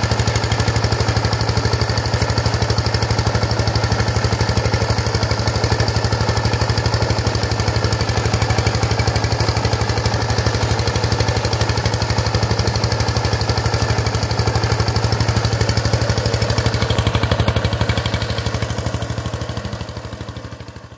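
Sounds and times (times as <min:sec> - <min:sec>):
diesel engine thudding under load: 0:00.0 - 0:20.8.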